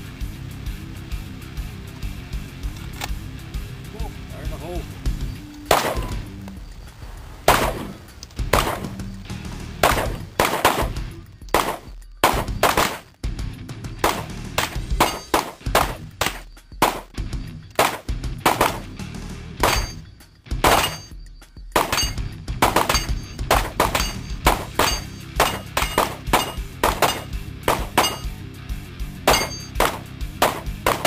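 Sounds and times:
rapid gunfire: 5.7s - 6.2s, 7.5s - 9.0s, 9.8s - 11.0s, 11.6s - 13.1s, 14.0s - 17.1s, 17.8s - 18.9s, 21.8s - 28.2s, 29.3s - 31.0s.

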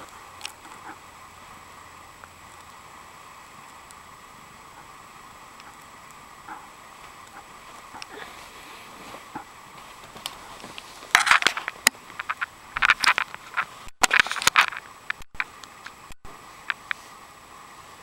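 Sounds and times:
rustling and scratchy scraping: 4.7s - 16.0s
sharp clicks: 11.1s - 17.0s.

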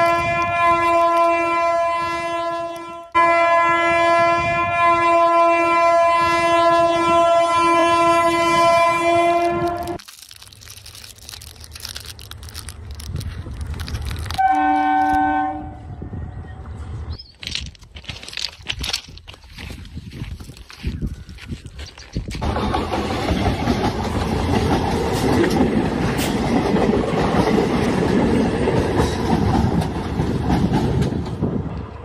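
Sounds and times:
train horn blast: 0.0s - 10.0s, 14.4s - 16.0s.

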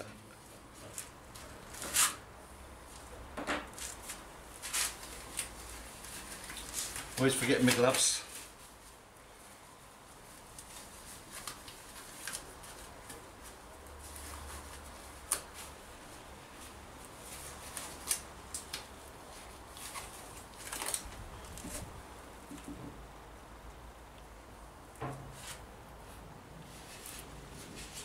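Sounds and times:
gloves crinkling: 0.3s - 22.2s.

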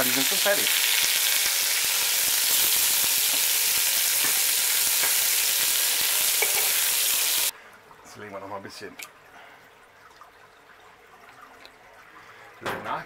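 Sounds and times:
mushrooms sizzling in hot oil: 0.0s - 7.5s.

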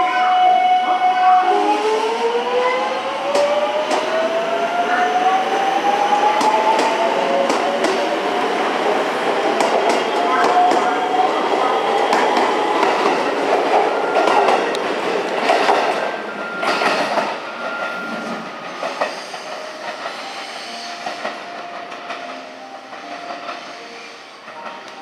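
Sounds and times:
train inverter whine: 0.0s - 25.0s
train wheels clattering: 6.2s - 25.0s.

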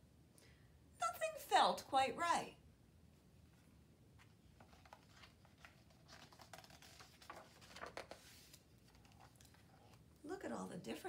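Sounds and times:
book page turning: 4.2s - 10.1s.

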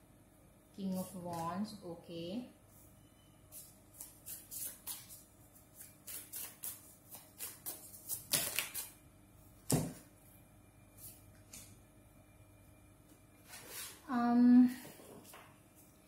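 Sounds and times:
cards shuffled by hand: 5.8s - 9.0s.

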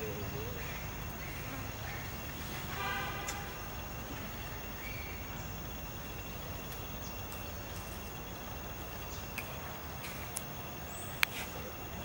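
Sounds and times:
steady hiss: 0.0s - 12.0s
faint clicks: 11.2s - 11.5s.

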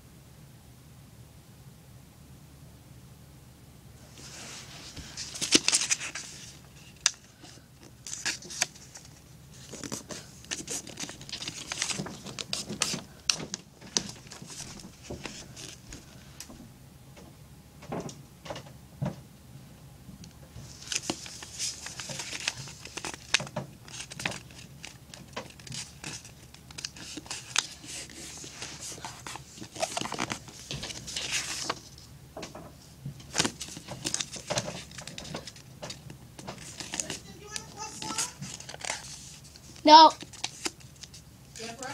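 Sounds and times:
paper creasing strokes: 4.1s - 7.1s, 20.6s - 32.0s
paper rustling and crinkling: 4.1s - 16.3s, 20.6s - 41.9s.

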